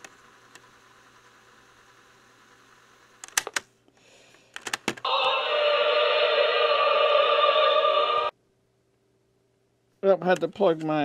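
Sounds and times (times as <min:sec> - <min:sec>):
tinny singing from small speaker: 0:05.1 - 0:08.3.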